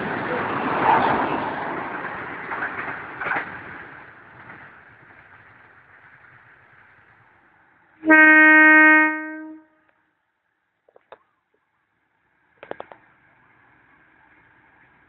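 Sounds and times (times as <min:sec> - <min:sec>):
freight train rumbling: 0:00.0 - 0:09.6
train horn blast: 0:08.0 - 0:09.8.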